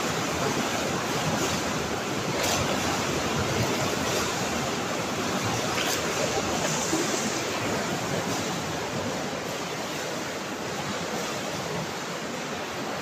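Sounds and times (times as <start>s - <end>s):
waves washing against tank wall: 0.0s - 13.0s.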